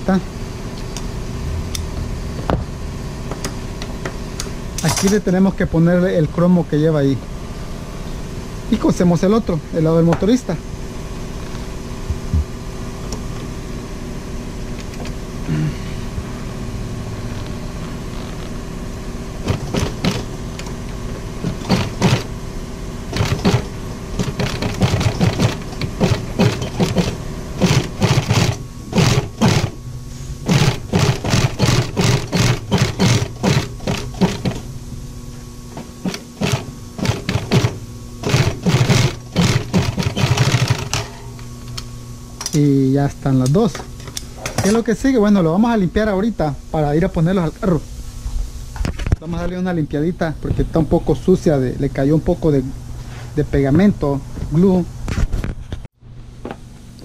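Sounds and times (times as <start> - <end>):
sewing machine stitching: 19.4 - 20.8, 21.4 - 22.3, 23.1 - 29.8, 30.4 - 34.6, 36.0 - 41.1
sewing machine motor humming: 19.4 - 22.4, 23.0 - 29.8, 30.4 - 34.7, 35.7 - 41.2.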